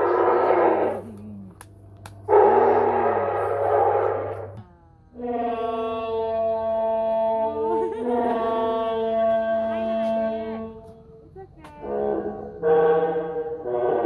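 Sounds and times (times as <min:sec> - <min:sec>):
horn-like dinosaur call: 0:00.0 - 0:01.0, 0:02.3 - 0:04.6, 0:05.2 - 0:10.7, 0:11.8 - 0:14.0.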